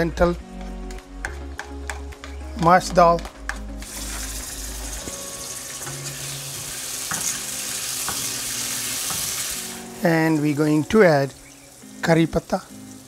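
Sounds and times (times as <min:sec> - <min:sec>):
spatula stirring in pan: 0:03.5 - 0:09.6
seeds sizzling in hot oil: 0:03.8 - 0:13.0.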